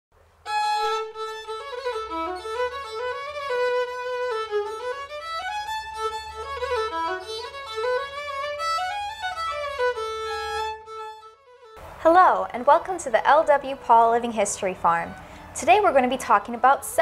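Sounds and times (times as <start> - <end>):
solo fiddle melody: 0.4 - 12.0.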